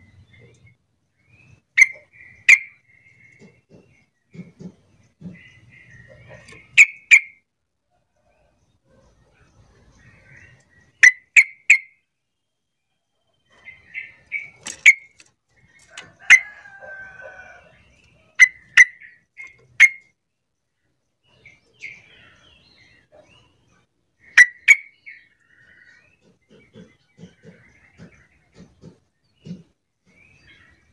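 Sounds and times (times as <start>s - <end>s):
bird chattering: 1.5s - 7.4s, 13.5s - 20.1s, 24.2s - 30.8s.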